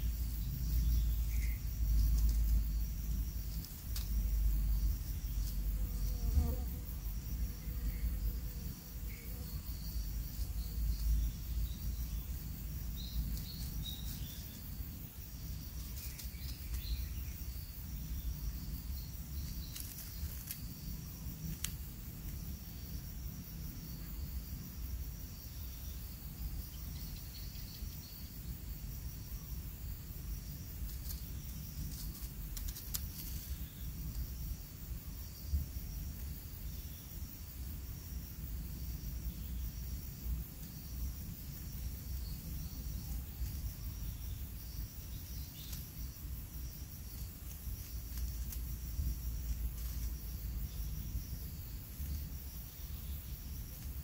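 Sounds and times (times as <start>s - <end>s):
constant low rumble: 0.0s - 54.0s
insects chirping: 0.0s - 54.0s
faint clicks: 21.5s - 21.8s.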